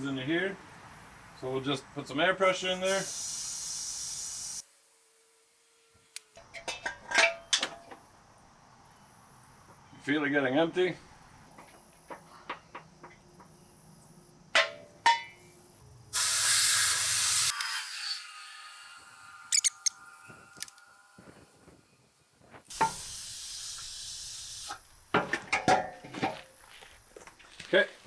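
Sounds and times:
compressed air hissing: 2.7s - 4.6s, 16.1s - 17.6s, 22.6s - 25.1s
metal knocks: 14.5s - 15.4s, 25.1s - 26.5s.

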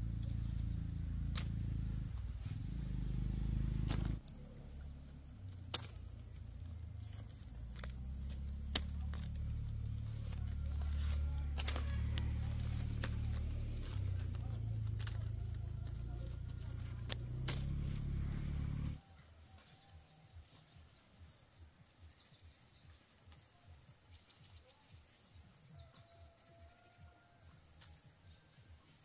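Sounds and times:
low rumble: 0.0s - 19.0s
insects chirping: 0.0s - 29.0s.

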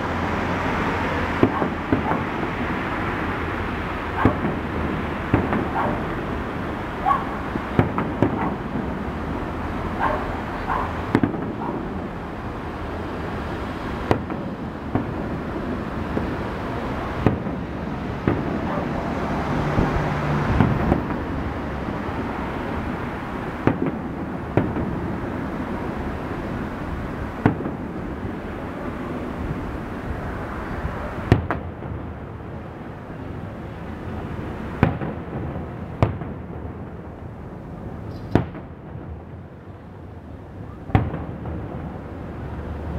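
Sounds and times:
steady background hiss: 0.0s - 42.9s
firework shells bursting: 7.7s - 9.0s.

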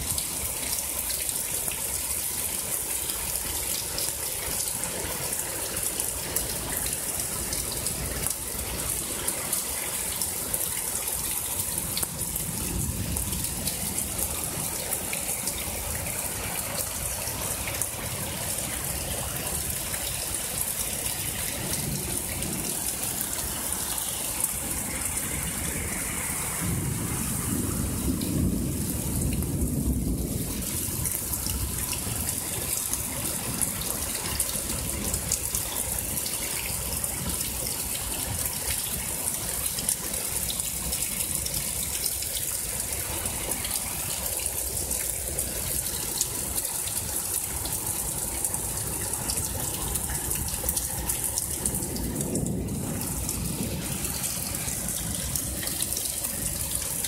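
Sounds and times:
heavy rain pouring: 0.0s - 57.0s
water gushing: 0.0s - 57.0s
deep thunder rumble: 26.6s - 31.1s.

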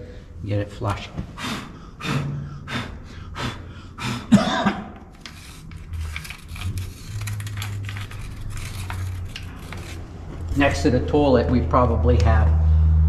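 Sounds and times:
man clearing his throat: 4.2s - 5.0s.

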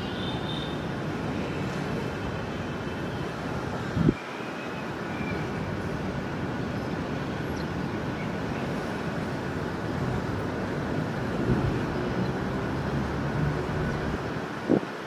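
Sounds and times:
distant engine and traffic rumble: 5.0s - 15.0s.

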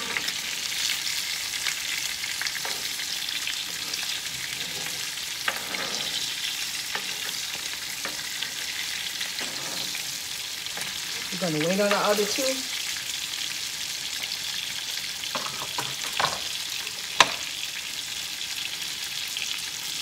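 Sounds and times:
fish sizzling in a skillet: 0.0s - 20.0s
metal spatulas scraping a pan: 2.5s - 12.5s.

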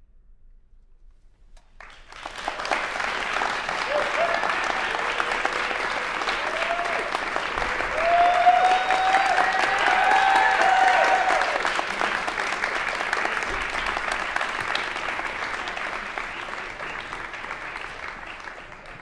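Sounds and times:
audience applauding: 1.8s - 19.0s
person cheering: 3.8s - 11.7s.

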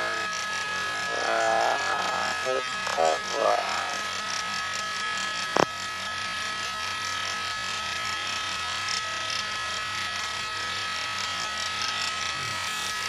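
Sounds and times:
high steady whine: 0.0s - 13.0s
radio hiss and crackle: 1.1s - 4.0s.

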